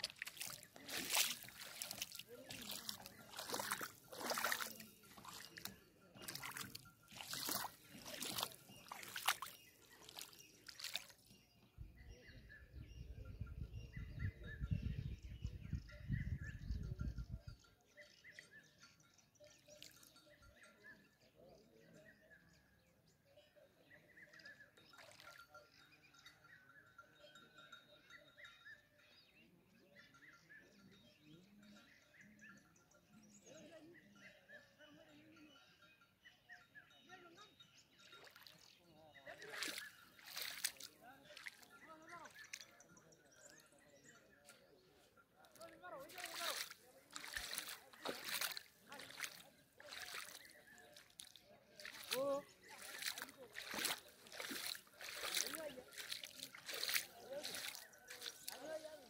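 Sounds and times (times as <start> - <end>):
bare feet splashing in water: 0.0 - 11.3, 38.2 - 38.7, 39.3 - 42.7, 45.5 - 59.0
bird calls: 0.0 - 17.0, 37.9 - 59.0
wind rumbling on microphone: 12.7 - 17.6.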